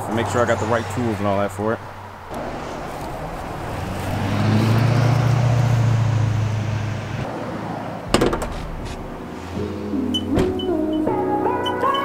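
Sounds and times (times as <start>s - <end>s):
vehicle driving past: 2.3s - 11.1s.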